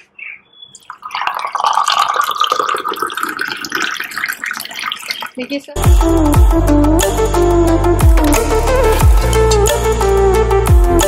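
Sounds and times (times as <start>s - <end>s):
juice pouring into a glass: 0.9s - 5.5s.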